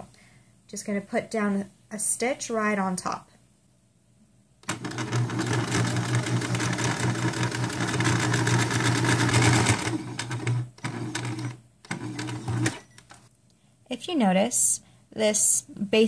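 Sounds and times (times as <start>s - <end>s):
sewing machine stitching: 4.6s - 13.2s.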